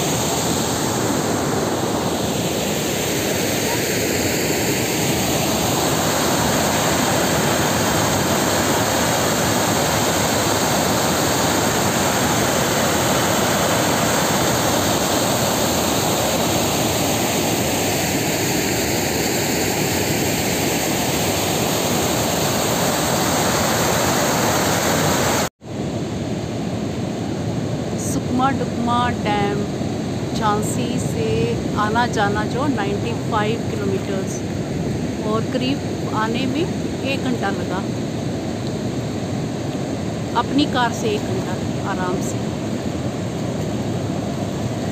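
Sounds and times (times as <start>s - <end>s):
water rushing over spillway: 0.0s - 25.5s.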